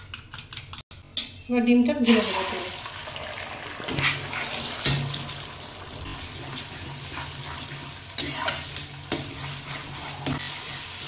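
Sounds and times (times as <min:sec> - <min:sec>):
eggs sizzling in hot oil: 0:02.0 - 0:11.0
metal spoon scraping pan: 0:03.9 - 0:05.2, 0:06.0 - 0:11.0.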